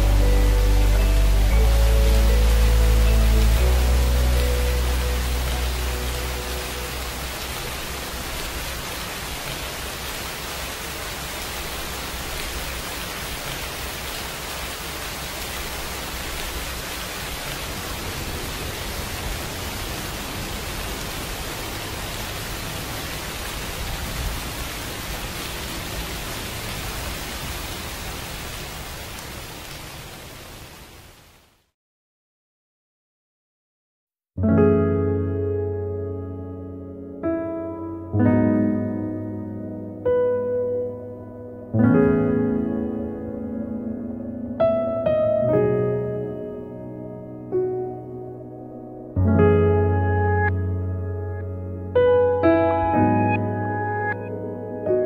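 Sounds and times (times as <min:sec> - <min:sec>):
music: 0:00.0 - 0:08.0, 0:34.4 - 0:55.0
heavy rain hissing: 0:00.0 - 0:31.7.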